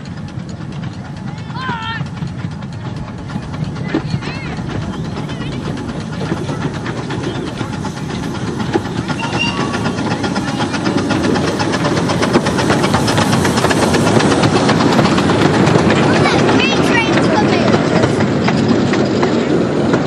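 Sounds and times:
steam locomotive exhaust chuffs: 0:00.0 - 0:20.0
train carriages running by: 0:00.0 - 0:20.0
hissing steam: 0:02.5 - 0:20.0.

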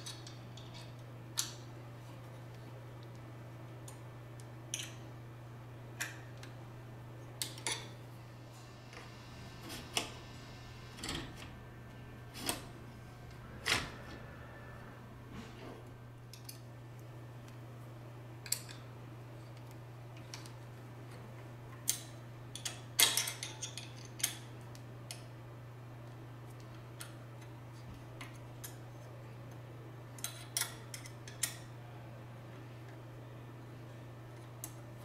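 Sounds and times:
steady low hum: 0:00.0 - 0:23.4.

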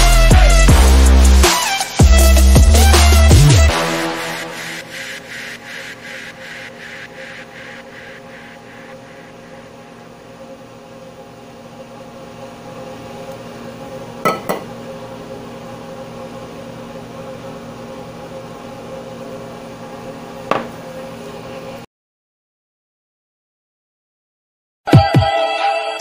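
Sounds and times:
steady background hum: 0:04.4 - 0:21.8.

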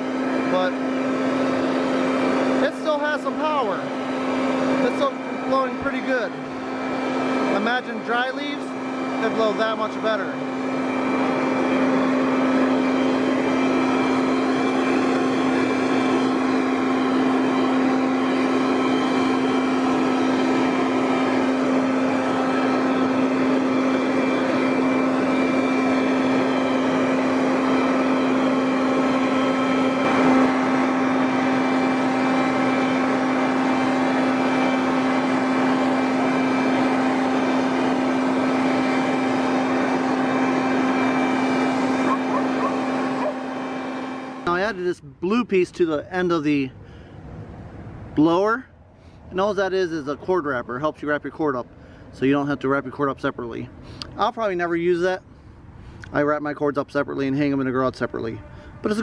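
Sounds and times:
leaf blower motor whine: 0:00.0 - 0:45.0, 0:46.4 - 0:48.0, 0:57.4 - 0:59.0.

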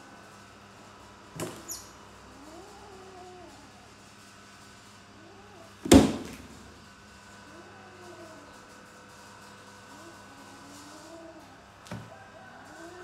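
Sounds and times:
loud thump: 0:05.8 - 0:06.6.

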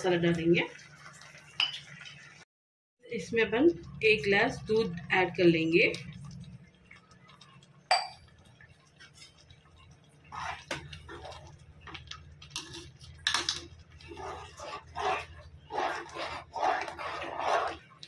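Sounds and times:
spoon scraping metal pot: 0:10.2 - 0:18.0.

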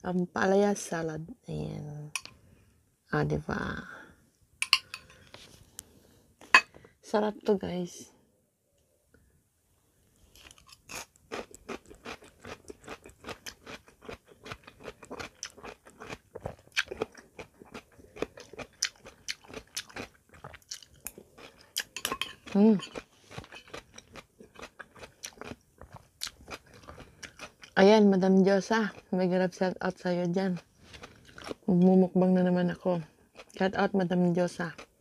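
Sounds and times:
crunchy chewing: 0:10.3 - 0:27.8, 0:30.8 - 0:31.6.

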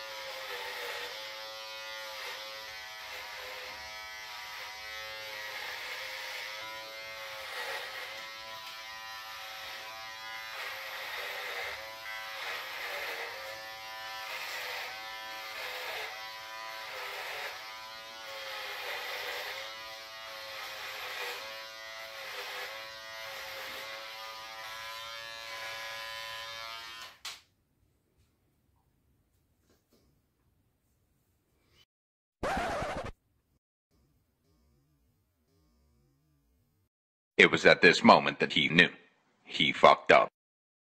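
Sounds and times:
electric beard trimmer buzzing: 0:00.0 - 0:27.4.

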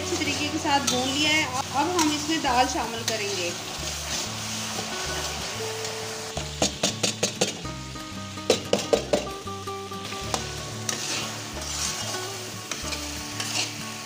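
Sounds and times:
metal spatula scraping wok: 0:00.0 - 0:07.6, 0:09.9 - 0:14.0
lentils sizzling in hot oil: 0:00.0 - 0:14.0.

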